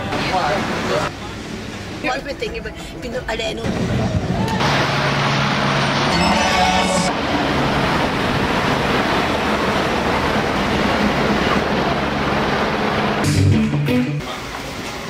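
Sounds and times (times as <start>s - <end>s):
cars driving past: 3.6s - 15.0s.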